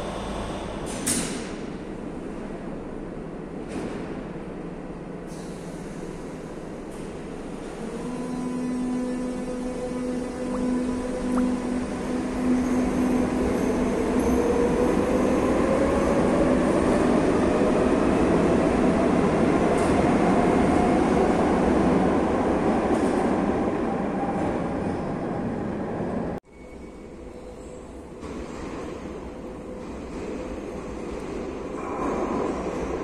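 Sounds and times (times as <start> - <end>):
train wheels rumbling on rails: 12.0 - 26.4, 27.5 - 33.0.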